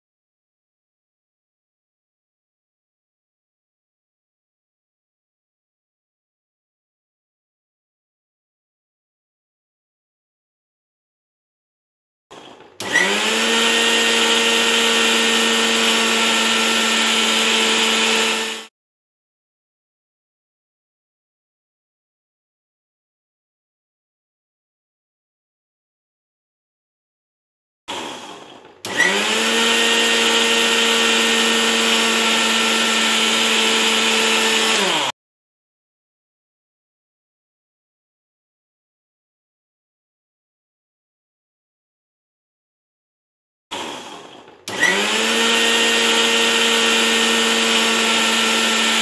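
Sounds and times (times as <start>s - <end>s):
mixer grinder whine: 12.3s - 18.7s, 27.9s - 35.2s, 43.7s - 49.0s.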